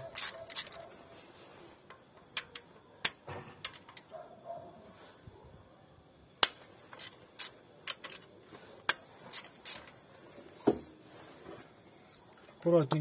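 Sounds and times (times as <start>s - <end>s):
wrench clicking on metal bolts: 0.0s - 0.9s.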